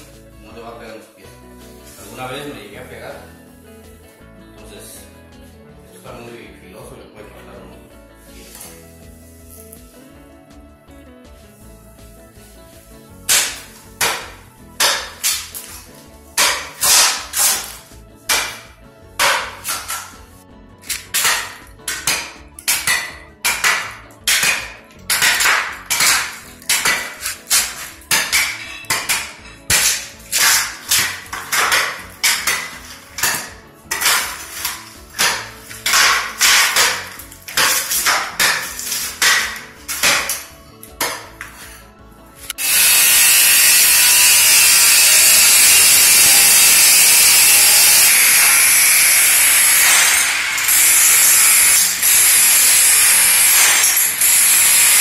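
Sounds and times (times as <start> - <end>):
scraper chopping into wooden boards: 13.3 - 20.2, 20.9 - 41.8.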